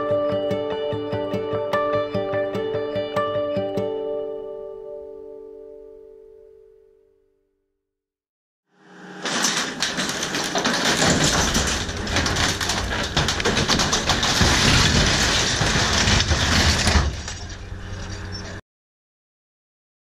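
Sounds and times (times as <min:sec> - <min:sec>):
metal shed creaking and crashing: 0:09.0 - 0:18.6
loader engine running: 0:09.6 - 0:18.6.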